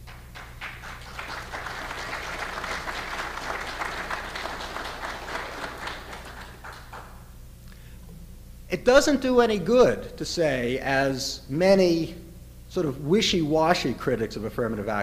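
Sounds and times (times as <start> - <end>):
audience applause: 0.0 - 7.2.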